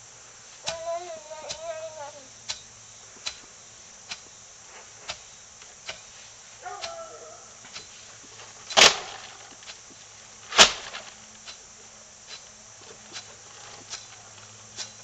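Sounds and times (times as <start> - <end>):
faint ticks: 0.6 - 4.3
hoe thudding into ground: 8.7 - 9.7, 10.5 - 11.2.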